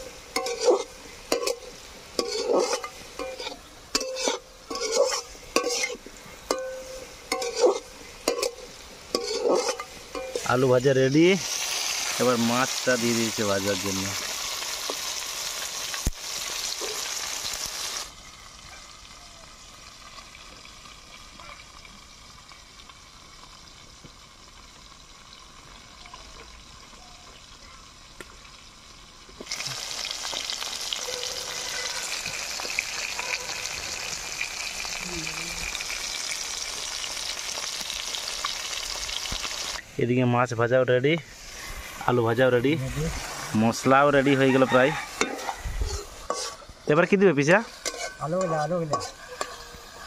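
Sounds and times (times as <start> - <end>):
fish sizzling in hot oil: 0.0 - 40.2, 41.2 - 50.0.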